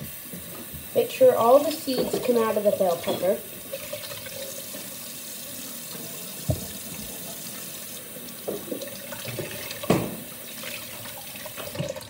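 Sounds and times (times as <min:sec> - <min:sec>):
faucet running into metal sink: 0:00.0 - 0:12.0.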